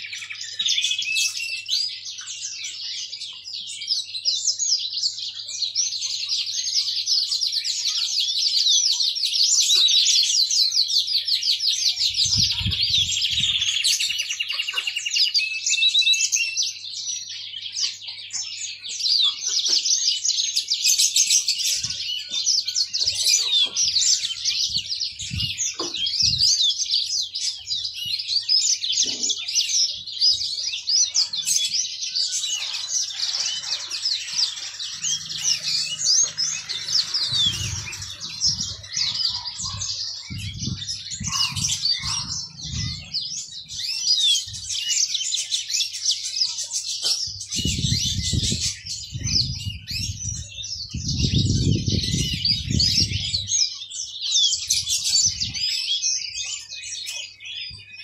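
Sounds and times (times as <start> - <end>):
canary singing: 0.0 - 58.0.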